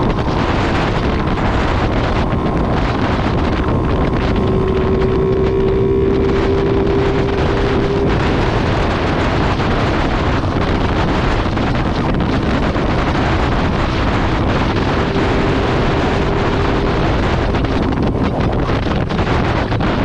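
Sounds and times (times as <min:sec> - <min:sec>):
motorcycle engine running: 0:00.0 - 0:20.0
wind rushing over microphone: 0:00.0 - 0:20.0.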